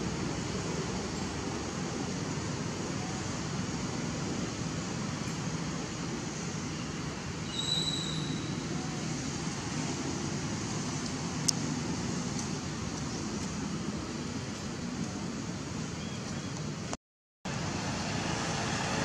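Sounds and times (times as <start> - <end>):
low outdoor rumble: 8.2 - 19.0.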